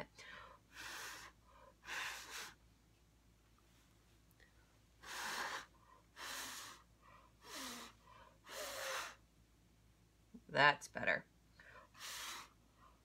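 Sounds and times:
puffs of breath: 0.2 - 2.6, 5.0 - 9.2, 11.6 - 13.0.

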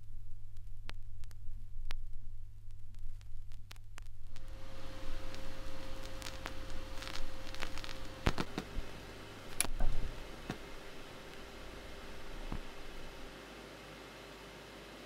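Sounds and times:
vinyl pops: 0.0 - 13.3
low steady hum: 0.0 - 15.0
vinyl hiss and crackles: 0.0 - 15.0.

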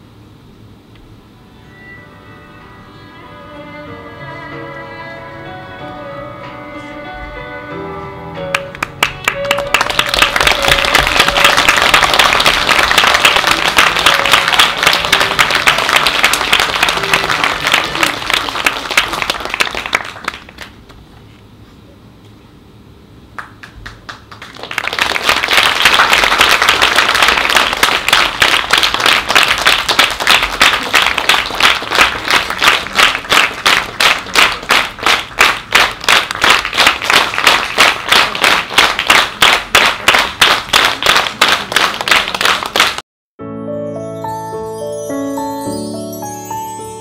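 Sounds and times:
rhythmic clapping in unison: 8.5 - 20.9, 23.3 - 43.0
audience applauding: 8.5 - 21.0, 23.4 - 43.0.

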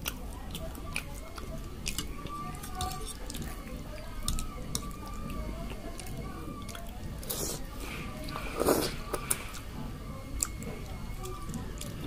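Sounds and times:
fork working through noodles: 0.0 - 12.0
mouth chewing noodles: 0.0 - 12.0.

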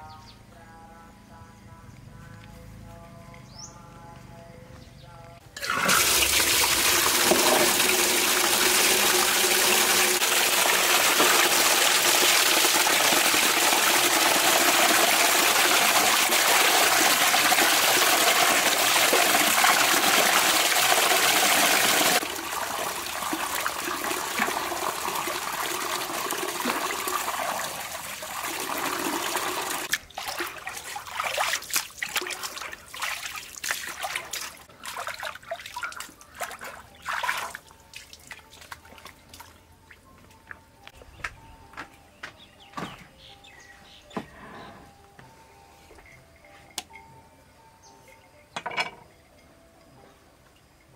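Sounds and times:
tap water gushing into metal basin: 5.6 - 37.6
water splashing and dripping: 5.6 - 40.6.

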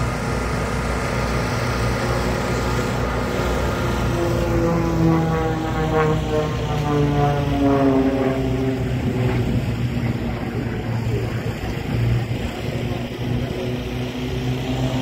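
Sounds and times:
aircraft flying past: 0.0 - 15.0.

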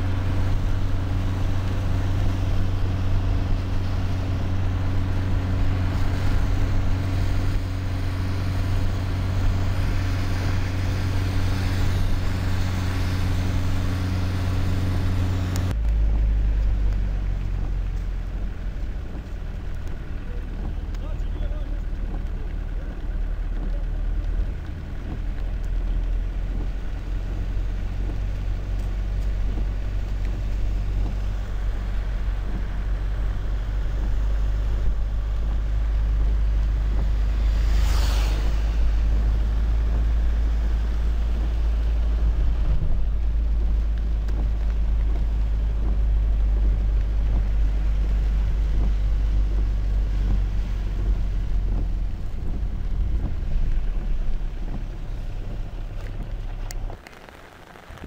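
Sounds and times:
car engine and tyres rumbling: 0.0 - 58.0
brief rushing hiss: 37.4 - 39.0.

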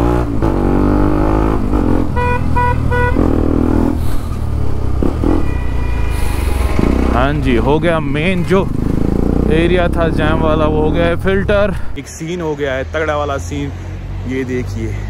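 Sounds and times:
motorcycle engine running: 0.6 - 11.9
motorcycle horn beeps: 2.1 - 3.3, 5.2 - 7.2.

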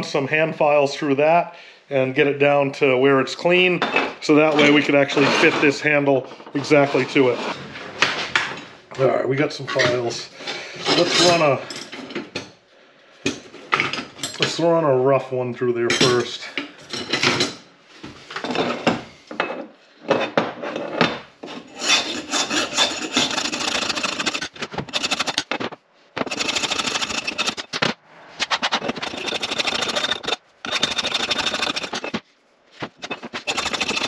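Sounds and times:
hand file rasping on metal: 21.6 - 25.5, 26.2 - 27.7, 28.4 - 32.2, 33.0 - 34.0.

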